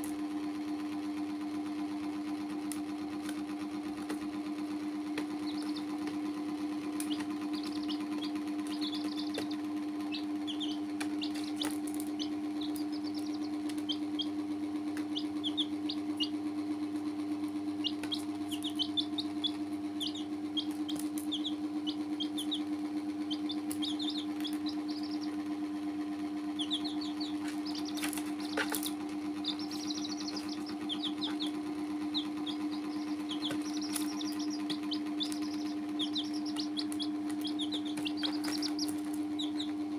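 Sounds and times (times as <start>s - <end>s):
chicks peeping: 1.4s - 39.9s
low hum: 5.2s - 39.9s
sharp clicks: 6.9s - 14.3s, 26.6s - 39.7s.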